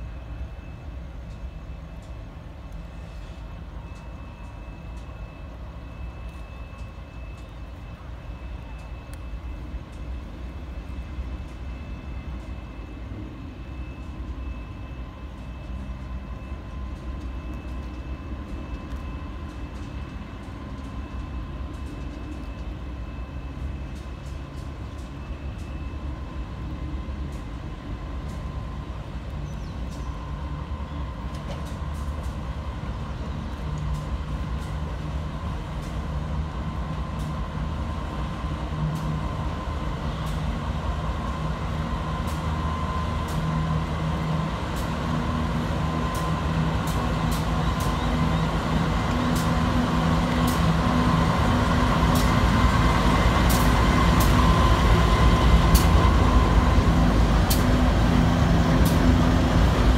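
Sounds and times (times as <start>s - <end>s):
diesel locomotive engines: 0.0s - 59.9s
steady whine: 0.0s - 59.9s
sharp clicks of train wheels: 15.4s - 30.5s, 31.1s - 59.9s.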